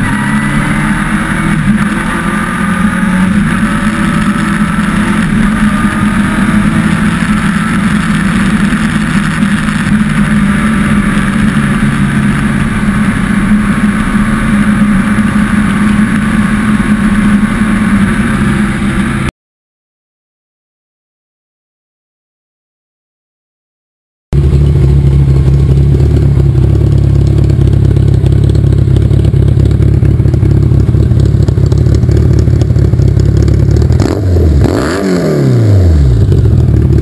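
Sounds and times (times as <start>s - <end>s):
motorcycle engine running: 0.0s - 19.3s, 24.4s - 37.0s.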